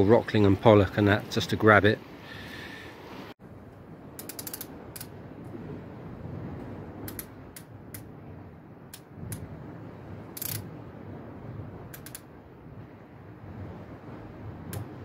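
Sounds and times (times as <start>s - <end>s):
fishing reel clicks: 4.2s - 5.1s, 10.4s - 10.6s, 12.0s - 12.3s.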